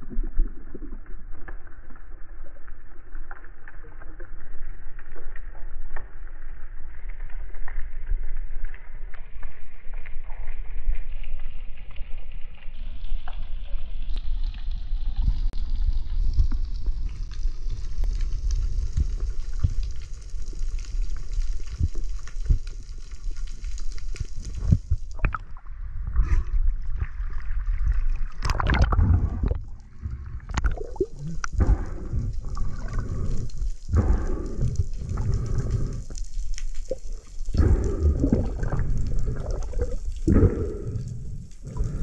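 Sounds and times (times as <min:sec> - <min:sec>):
water gurgling and sloshing: 0:00.0 - 0:12.0, 0:12.9 - 0:42.0
underwater hiss: 0:29.0 - 0:42.0.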